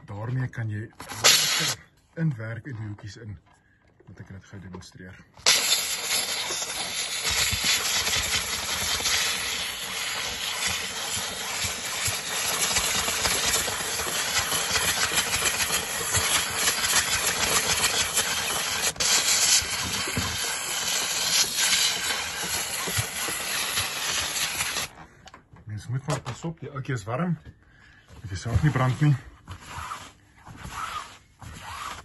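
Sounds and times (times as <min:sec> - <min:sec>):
steam cleaner nozzle hissing: 0:01.1 - 0:01.8, 0:05.4 - 0:24.9.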